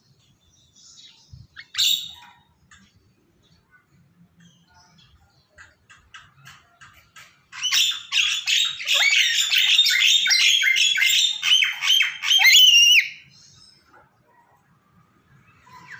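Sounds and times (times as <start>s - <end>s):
parrot squawking and whistling: 7.6s - 13.2s.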